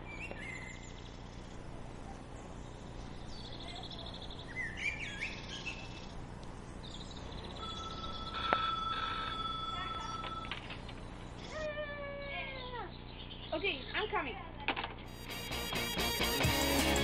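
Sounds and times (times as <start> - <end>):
whistled bird calls: 0.0 - 1.1, 3.1 - 6.1
bird trill: 0.0 - 1.6, 2.5 - 11.6
steady low hum: 0.0 - 15.5
small birds chirping: 0.0 - 16.1.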